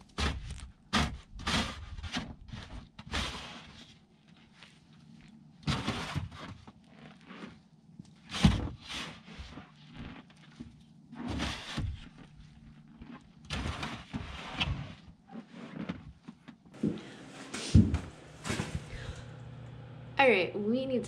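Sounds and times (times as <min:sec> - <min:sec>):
snow shovel scraping wooden boards: 0:05.7 - 0:06.5, 0:11.2 - 0:11.9, 0:13.5 - 0:14.9.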